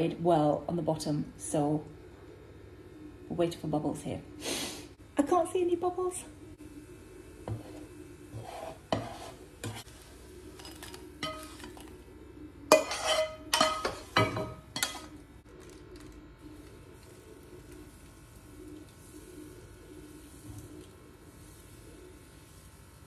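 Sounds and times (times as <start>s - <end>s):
spatula scraping frying pan: 7.4s - 10.0s, 10.6s - 11.9s, 12.7s - 15.1s.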